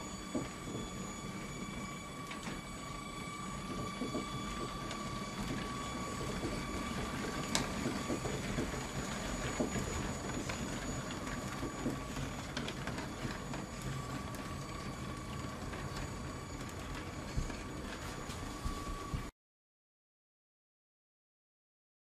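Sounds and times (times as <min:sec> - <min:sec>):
toy train motor whine: 0:00.0 - 0:19.3
plastic wheels and wagons rattling: 0:03.7 - 0:18.8.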